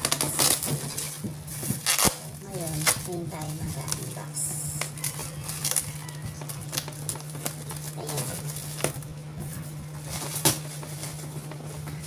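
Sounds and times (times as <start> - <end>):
scissors snipping packing tape: 0.0 - 0.9, 1.8 - 3.1
steady low hum: 0.0 - 12.0.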